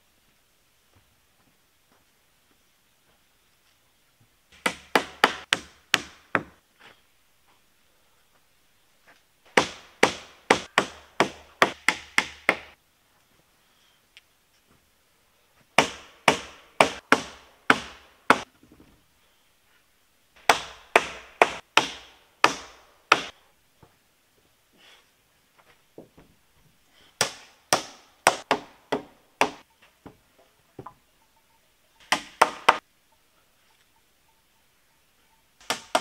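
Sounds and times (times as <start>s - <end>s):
hammer striking wooden beam: 4.6s - 6.6s, 9.5s - 12.8s, 15.8s - 18.5s, 20.4s - 23.4s, 27.2s - 29.6s, 32.0s - 32.8s, 35.6s - 36.0s.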